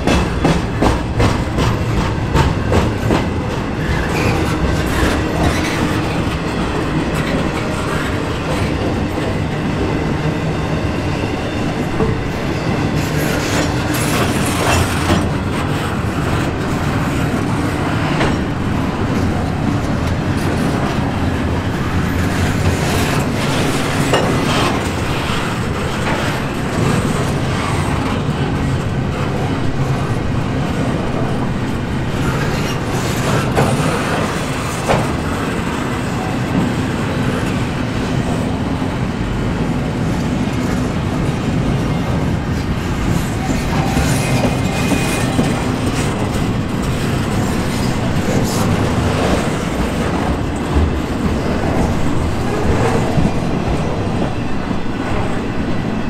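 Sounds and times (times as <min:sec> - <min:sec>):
sharp knocks from train cars: 0:00.0 - 0:06.2, 0:33.0 - 0:35.5
train wheels rumbling on rails: 0:00.0 - 0:56.0.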